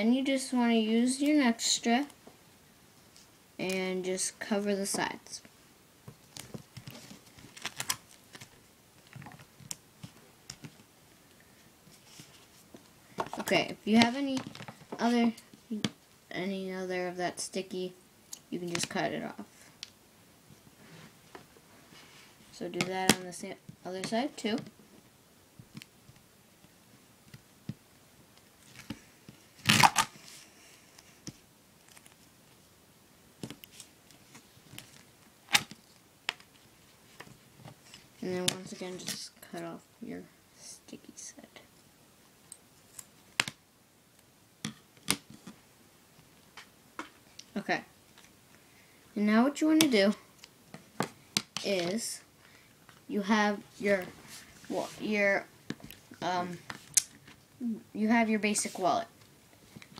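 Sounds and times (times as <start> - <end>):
tape crinkling and tapping: 6.0 - 10.9, 25.6 - 30.1, 31.2 - 32.6, 33.4 - 38.7, 42.9 - 43.6.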